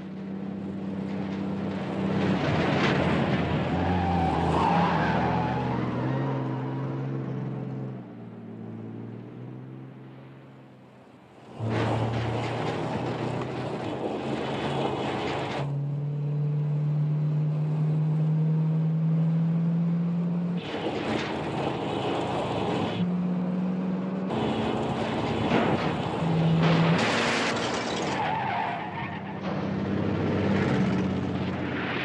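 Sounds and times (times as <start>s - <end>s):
road and tyre noise: 0.0s - 32.0s
car engine pulling hard: 11.2s - 32.0s.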